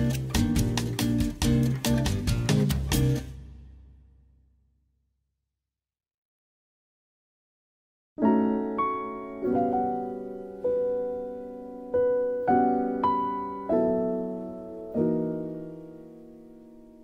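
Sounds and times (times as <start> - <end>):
slow piano chords: 8.2 - 17.0.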